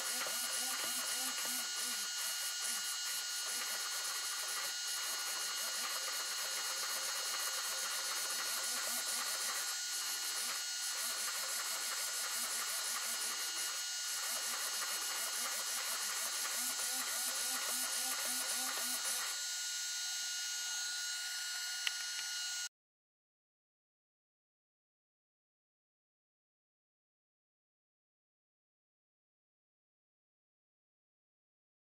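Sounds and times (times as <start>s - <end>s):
servo motors whining and buzzing: 0.0s - 22.7s.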